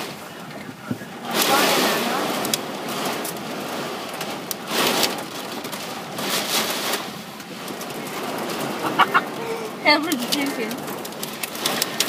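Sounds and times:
torrential rain pouring: 0.0s - 12.0s
sharp raindrop ticks: 0.4s - 12.0s.

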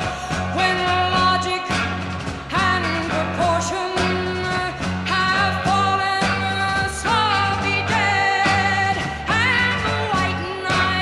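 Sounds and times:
drums: 0.0s - 11.0s
electric guitar: 0.0s - 11.0s
pulsing bass line: 0.0s - 11.0s
woman singing lead vocal: 0.0s - 11.0s.

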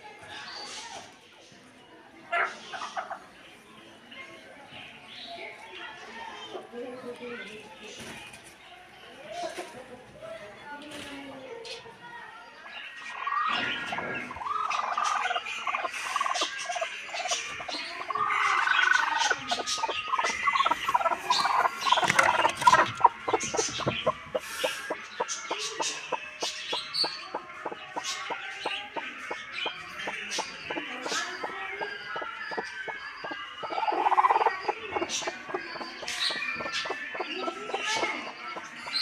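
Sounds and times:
hen clucking: 13.1s - 39.0s.

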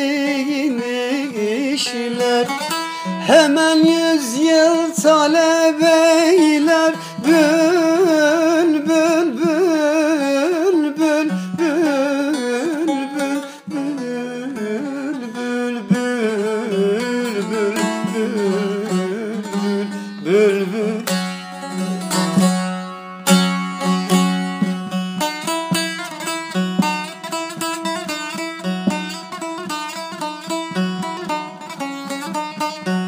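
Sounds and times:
person singing wavering line: 0.0s - 22.1s
plucked string instrument melody: 0.0s - 33.0s.

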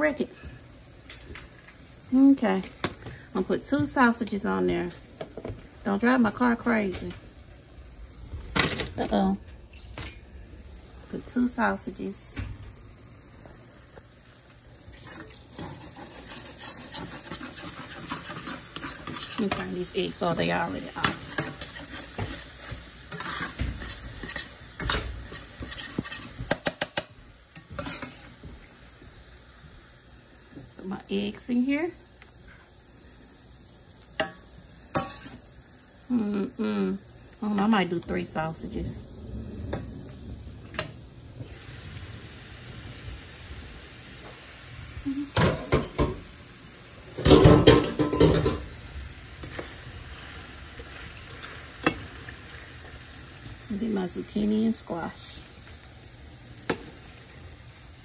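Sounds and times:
sizzling: 0.0s - 58.0s
utensil scraping eggs in skillet: 14.9s - 28.4s.

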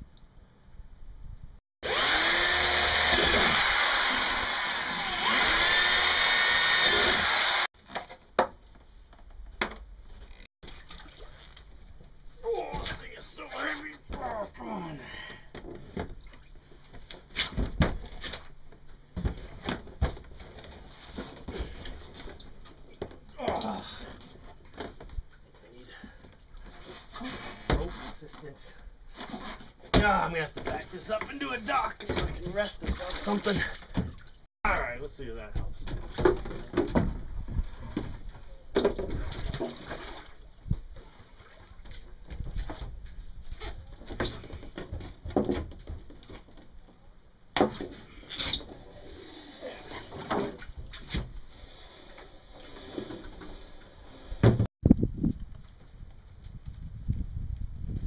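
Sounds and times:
water splashing and sloshing: 10.4s - 13.2s, 30.1s - 34.5s, 35.9s - 46.6s.

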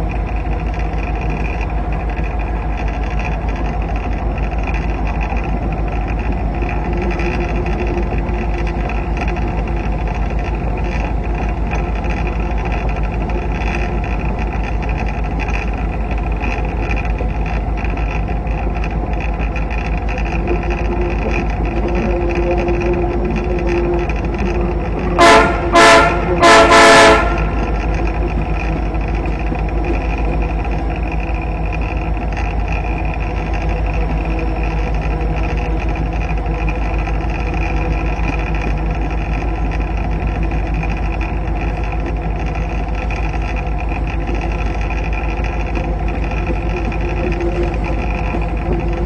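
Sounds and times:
diesel locomotive running: 0.0s - 49.0s
train horn blasts: 22.0s - 27.9s.

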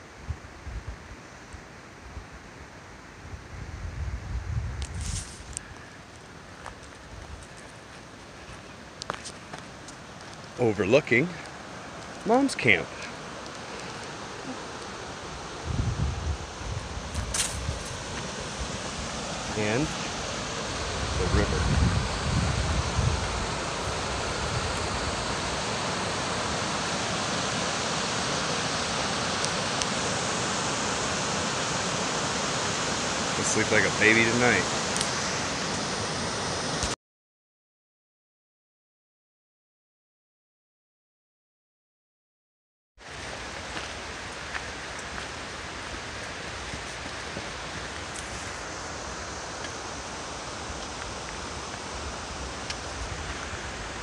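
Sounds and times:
river rushing over rocks: 8.0s - 36.9s, 43.0s - 54.0s.

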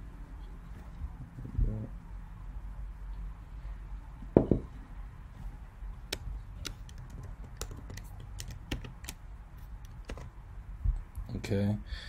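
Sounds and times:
dull thump: 4.4s - 4.7s
mouse and keyboard clicks: 6.1s - 9.2s, 9.8s - 10.3s.

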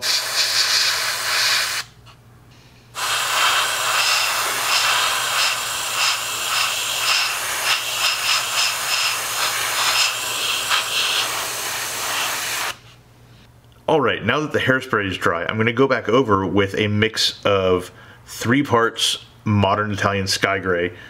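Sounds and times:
airbrush hissing: 0.0s - 2.2s, 3.0s - 12.9s.

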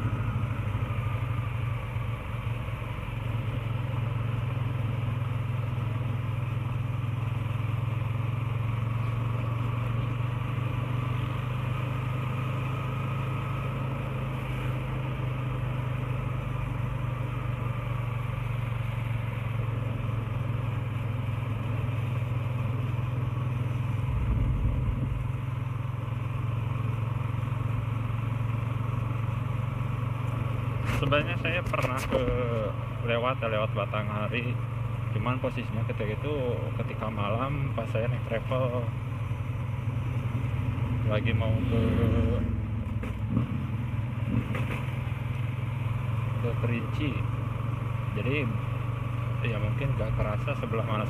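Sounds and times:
motorcycle engine running: 0.0s - 51.0s.

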